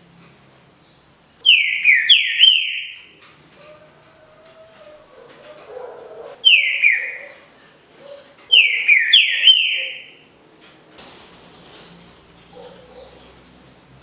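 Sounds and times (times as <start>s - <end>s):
bird whistling song: 1.4s - 3.1s, 6.4s - 7.4s, 8.0s - 10.2s.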